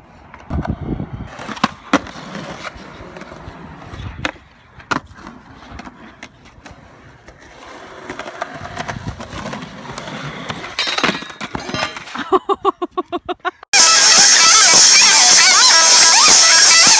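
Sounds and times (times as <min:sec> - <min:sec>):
skateboard wheels rolling on concrete: 0:00.0 - 0:12.4
skateboard clattering: 0:04.2 - 0:12.2.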